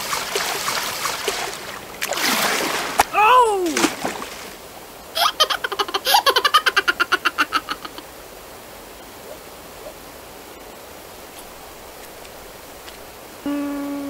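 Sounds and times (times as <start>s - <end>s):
cartoon character laughing: 5.2s - 8.0s.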